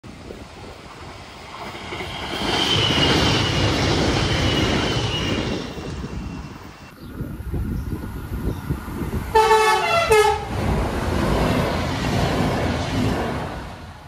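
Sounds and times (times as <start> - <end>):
train wheels rumbling on rail: 0.1 - 14.0
high wheel squeal: 1.7 - 6.9.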